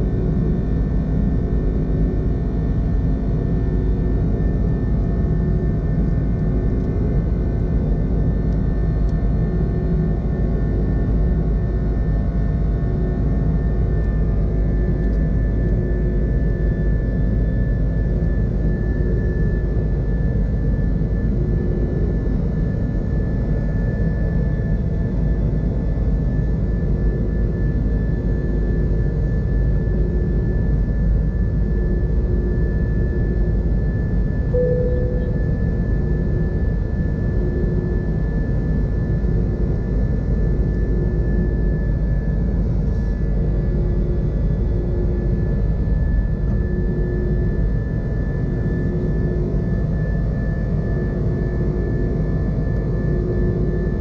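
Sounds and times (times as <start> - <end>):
jet engine high whine: 0.0 - 54.0
jet engine low rumble: 0.0 - 54.0.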